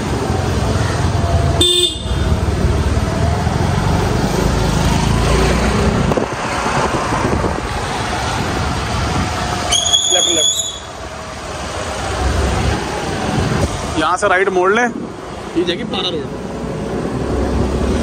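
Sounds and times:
wind rumble on microphone: 0:05.6 - 0:09.6.

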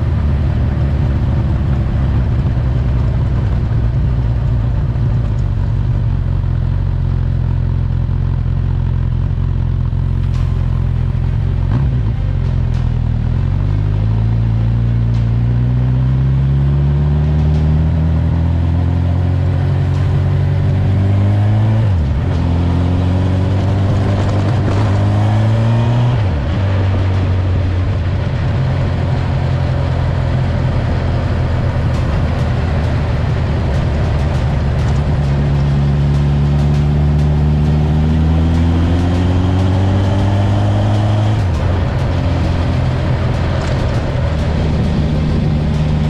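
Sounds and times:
motorcycle engine: 0:00.0 - 0:46.0.

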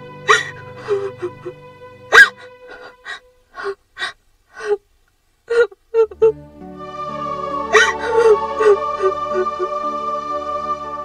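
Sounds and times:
sad background music: 0:00.0 - 0:03.8, 0:06.0 - 0:11.0
woman sobbing: 0:00.3 - 0:04.8, 0:05.5 - 0:06.4, 0:07.7 - 0:09.8.

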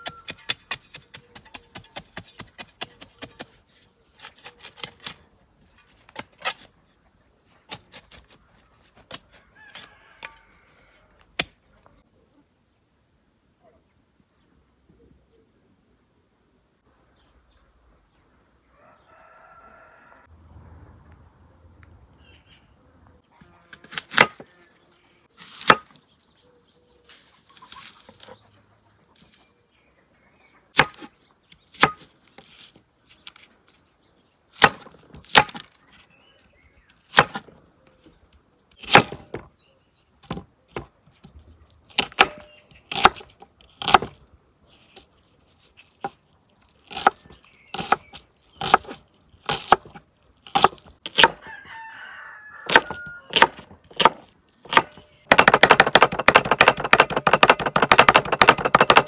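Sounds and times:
sharp knocks: 0:54.8 - 0:59.0.

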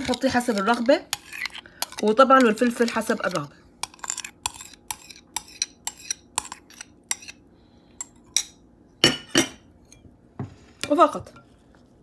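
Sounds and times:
spoon scraping bowl: 0:00.0 - 0:07.4.

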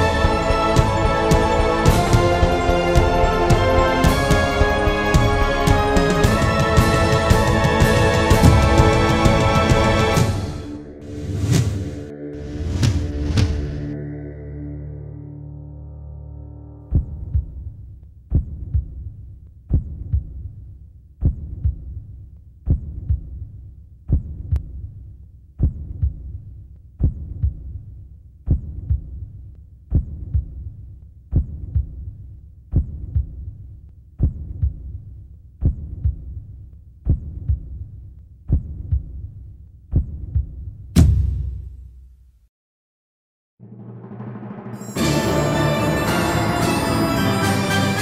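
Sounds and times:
heartbeat thumps: 0:16.8 - 0:20.6, 0:21.2 - 0:22.1, 0:22.7 - 0:23.5, 0:24.1 - 0:24.8, 0:25.6 - 0:26.4, 0:27.0 - 0:27.8, 0:28.5 - 0:29.3, 0:29.9 - 0:33.6, 0:34.2 - 0:42.1.

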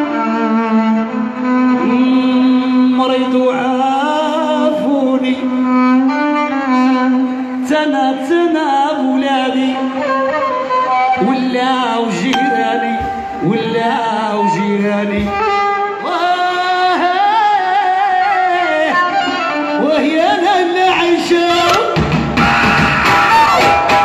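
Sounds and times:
man singing into a microphone: 0:01.7 - 0:22.0
live band music: 0:12.4 - 0:14.4.

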